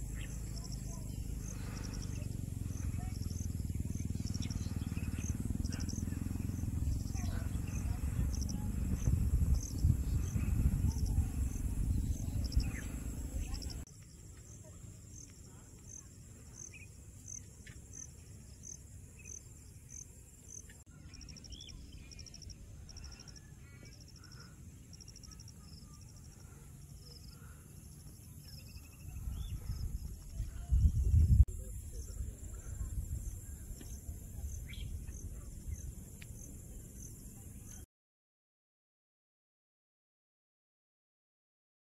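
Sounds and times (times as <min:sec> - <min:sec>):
wind rumbling on microphone: 0:00.0 - 0:13.8, 0:28.7 - 0:37.8
insects chirping in pulses: 0:00.0 - 0:37.2.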